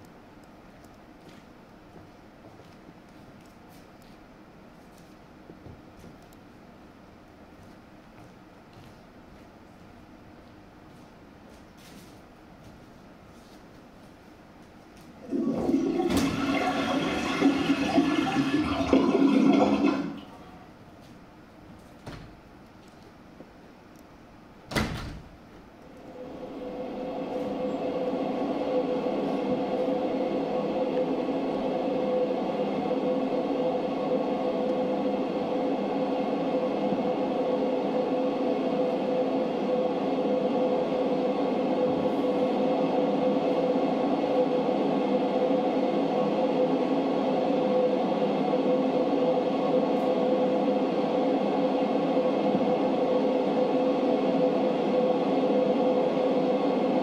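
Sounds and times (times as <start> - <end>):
ambient drone of held tones: 26.0 - 57.0.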